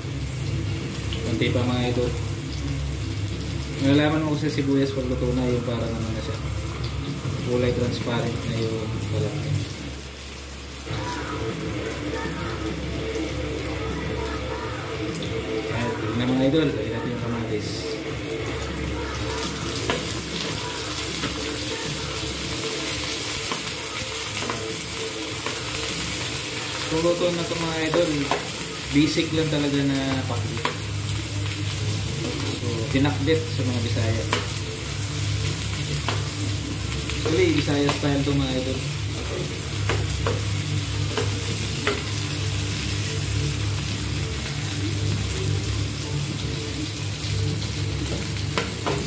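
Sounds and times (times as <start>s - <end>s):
vegetables sizzling in hot oil: 0.0s - 49.0s.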